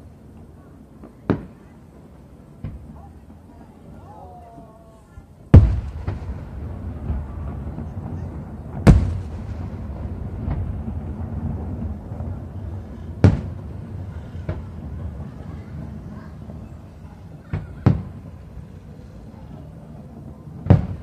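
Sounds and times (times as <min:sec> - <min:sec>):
low rumbling echo: 0:05.4 - 0:21.0
firework shells booming: 0:05.5 - 0:21.0.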